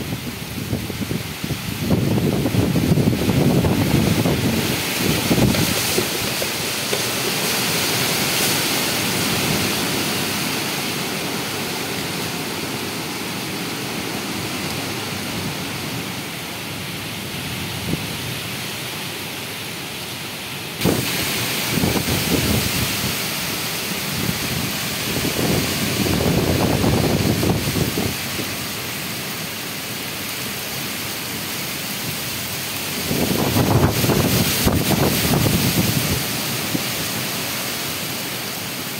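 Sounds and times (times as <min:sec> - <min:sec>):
wind buffeting microphone: 0:00.0 - 0:08.1, 0:20.8 - 0:23.2, 0:24.1 - 0:28.5, 0:33.0 - 0:36.9
gusty wind through trees: 0:00.0 - 0:38.9
rain hissing: 0:00.0 - 0:38.9.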